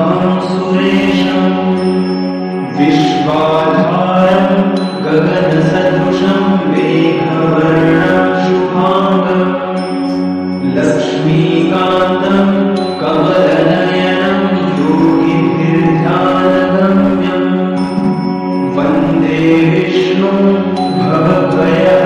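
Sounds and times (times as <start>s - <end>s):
chanted mantra with accompaniment: 0.0s - 22.0s.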